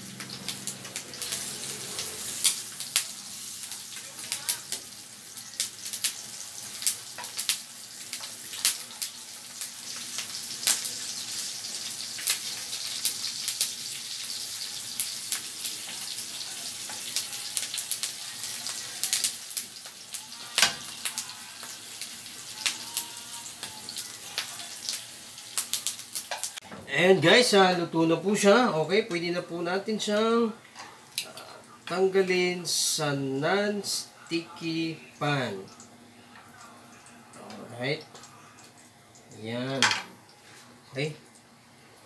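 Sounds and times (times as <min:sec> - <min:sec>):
meat sizzling in a pan: 0:00.0 - 0:26.6.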